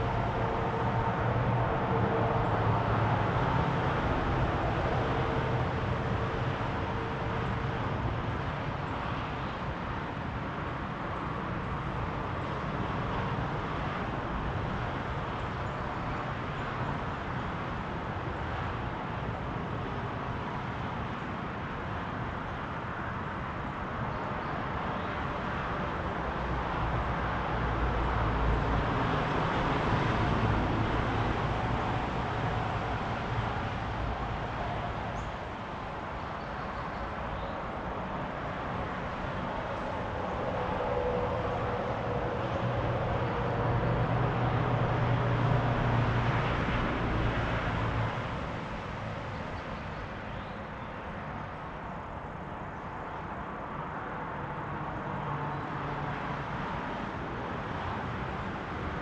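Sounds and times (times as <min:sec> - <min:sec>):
passing cars: 0:00.0 - 0:59.0
vehicle passing with deep rumble: 0:37.7 - 0:50.2.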